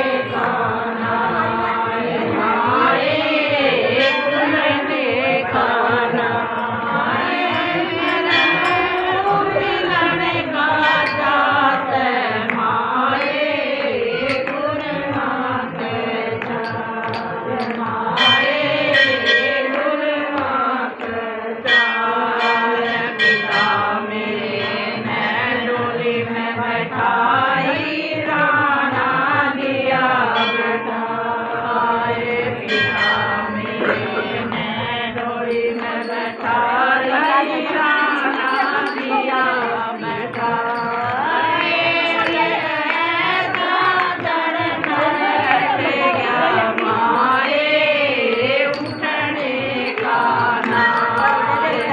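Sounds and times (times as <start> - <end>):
women singing in unison: 0.0 - 51.9
hand clapping: 12.4 - 18.0, 33.6 - 47.6, 48.2 - 51.9.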